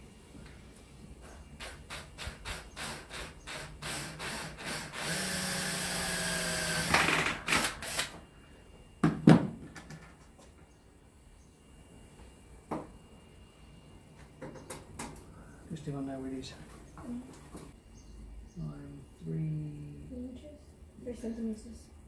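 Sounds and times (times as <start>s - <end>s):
cordless drill motor whine: 2.8s - 8.2s.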